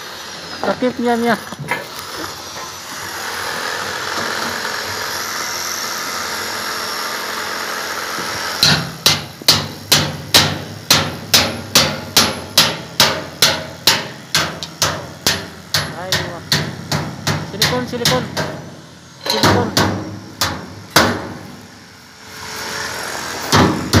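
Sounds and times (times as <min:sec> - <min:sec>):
hammer striking sheet metal: 0:08.6 - 0:21.6, 0:23.5 - 0:24.0.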